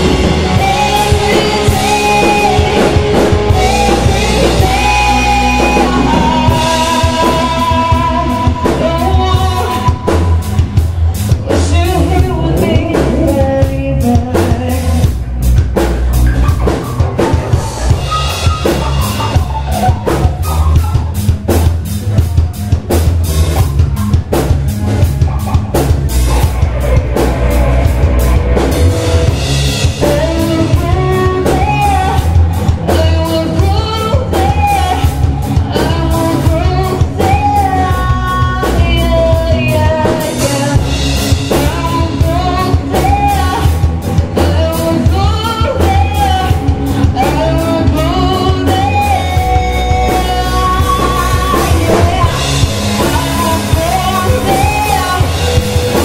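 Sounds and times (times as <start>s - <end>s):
woman singing: 0.0s - 15.2s, 29.9s - 56.0s
live rock band playing: 0.0s - 56.0s.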